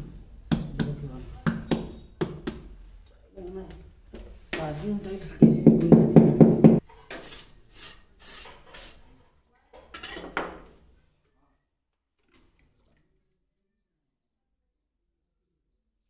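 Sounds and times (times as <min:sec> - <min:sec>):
trowel scraping tile and mortar: 0:06.8 - 0:09.1.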